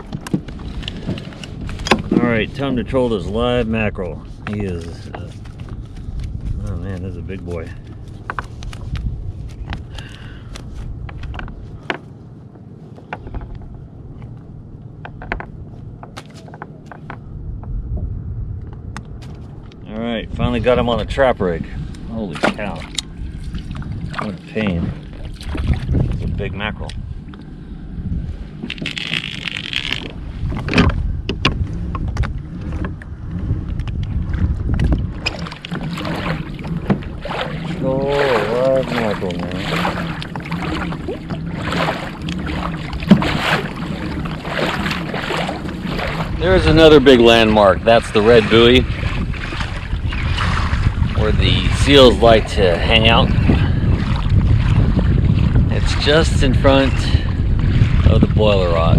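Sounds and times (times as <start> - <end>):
low wind rumble on microphone: 0.0 - 58.9
fishing gear clicks and knocks: 15.0 - 17.2, 28.6 - 33.1.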